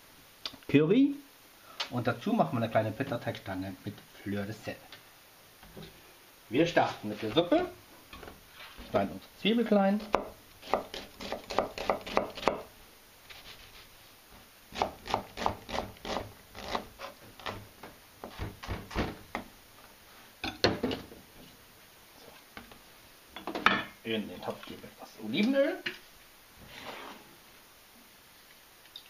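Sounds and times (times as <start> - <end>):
knife chopping on cutting board: 10.0 - 12.7, 14.7 - 17.6, 18.2 - 19.4.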